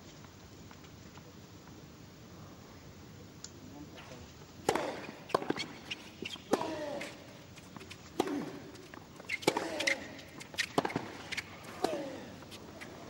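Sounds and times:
tennis racket hitting ball: 4.6 - 5.6, 8.1 - 12.3
tennis player grunting: 6.5 - 7.3, 8.2 - 8.7, 9.4 - 10.3, 11.6 - 12.4.

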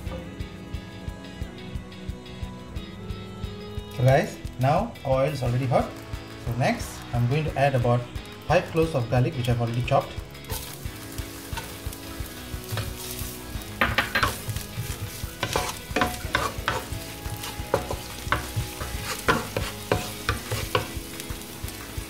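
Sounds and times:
garlic sizzling in hot oil: 4.7 - 22.0
wooden spatula scraping a pan: 12.6 - 21.0.

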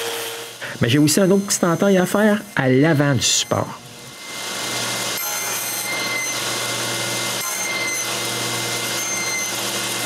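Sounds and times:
table saw cutting wood: 0.0 - 10.0.

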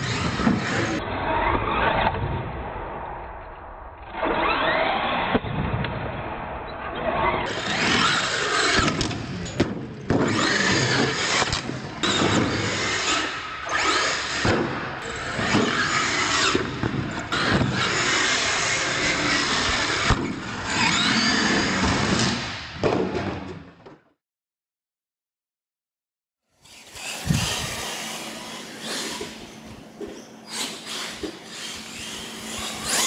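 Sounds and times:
toy truck motors whining: 7.4 - 9.6, 10.3 - 14.4, 15.0 - 22.2, 26.6 - 33.0.

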